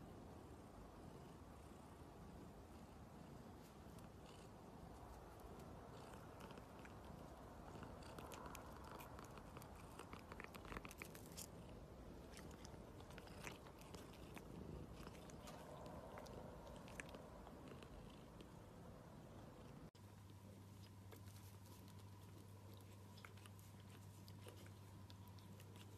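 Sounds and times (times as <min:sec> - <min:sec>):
cat nibbling fingers: 0:03.6 - 0:18.6, 0:20.5 - 0:25.9.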